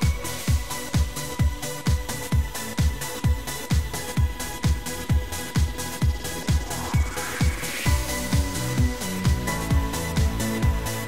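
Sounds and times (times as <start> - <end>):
electronic dance music: 0.0 - 11.0
four-on-the-floor kick drum: 0.0 - 11.0.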